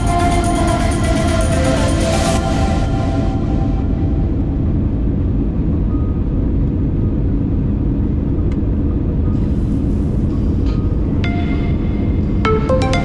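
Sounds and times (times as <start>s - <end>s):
faint music: 0.0s - 13.0s
airliner cabin rumble: 2.4s - 12.5s.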